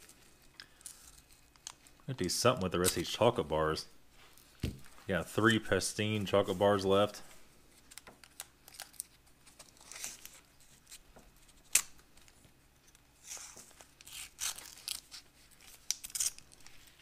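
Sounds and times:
wrapper tearing and crinkling: 7.8s - 11.0s, 13.2s - 17.0s.

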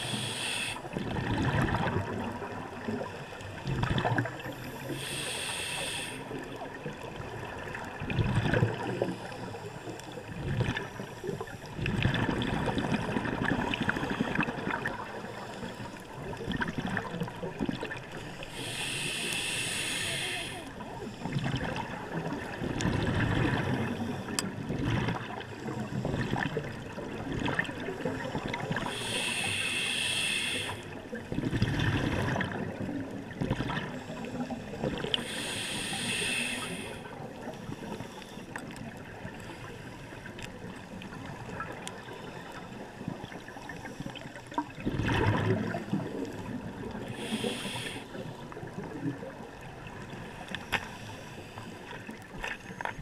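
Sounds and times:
scuba regulator hissing inhale: 0.0s - 1.0s, 4.4s - 6.6s, 18.1s - 21.4s, 28.6s - 31.1s, 33.9s - 38.6s, 47.0s - 48.5s
exhaled air bubbling: 0.0s - 9.6s, 10.2s - 39.4s, 40.2s - 50.4s
steady underwater hiss: 0.0s - 44.8s, 45.4s - 53.0s.

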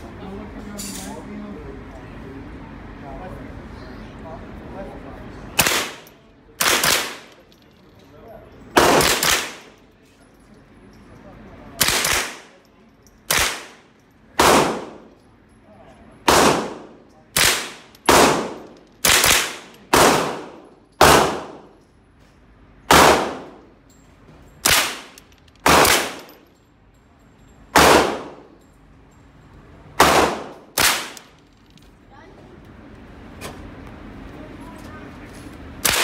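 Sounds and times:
rifle shots echoing indoors: 5.6s - 7.4s, 8.8s - 9.8s, 11.8s - 12.6s, 13.2s - 15.2s, 16.2s - 21.8s, 22.8s - 23.7s, 24.6s - 26.4s, 27.7s - 28.6s, 30.0s - 31.4s, 35.8s - 36.0s.

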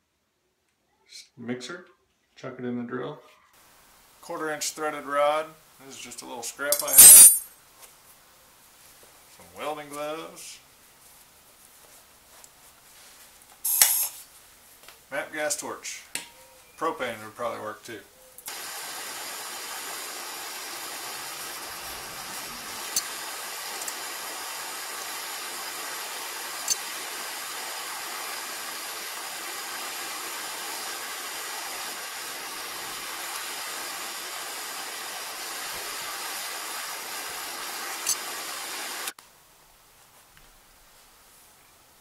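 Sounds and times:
gas torch hissing: 13.7s - 14.2s, 18.5s - 39.2s.

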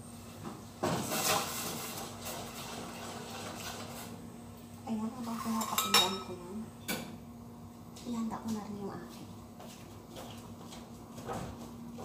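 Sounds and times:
pot and utensil clatter: 0.8s - 4.1s, 5.3s - 7.1s.

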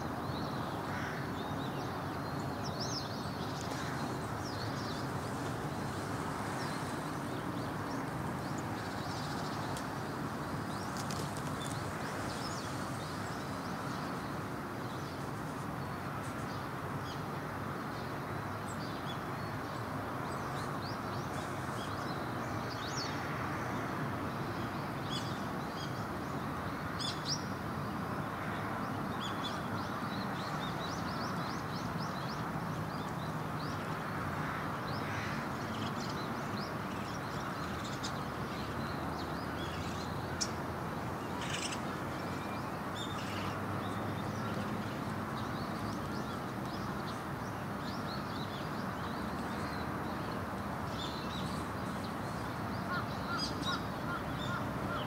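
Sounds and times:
crows cawing: 0.9s - 1.3s.

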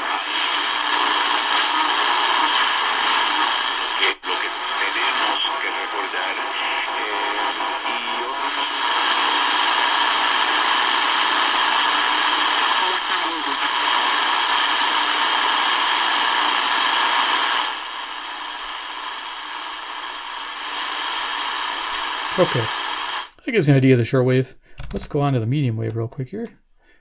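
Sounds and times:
faint radio voice: 0.0s - 17.6s, 22.2s - 22.8s
radio static hiss: 0.0s - 24.4s.

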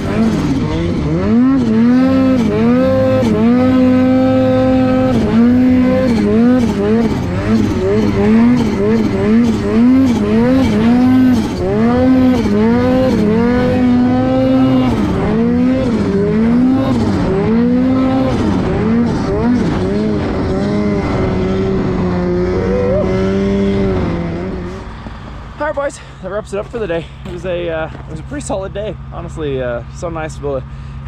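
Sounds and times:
snowmobile engine revving: 0.0s - 30.9s.

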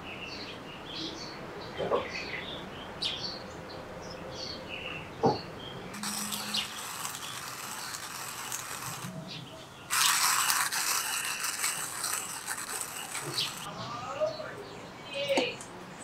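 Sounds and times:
rasping rattling mechanical sound: 6.0s - 9.2s, 9.9s - 13.7s.

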